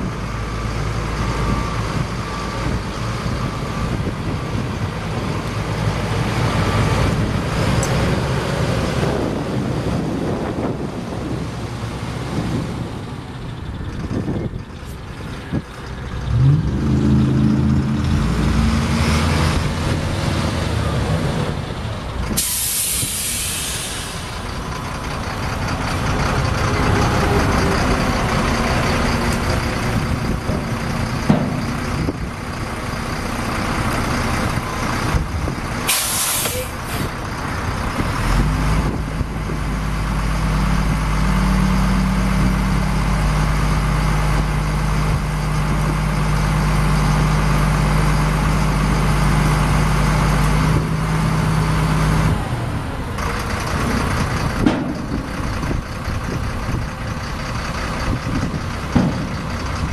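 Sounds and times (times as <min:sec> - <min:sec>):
diesel truck engine running: 0:00.0 - 0:59.9
air brake hiss: 0:22.4 - 0:24.4, 0:35.9 - 0:37.1.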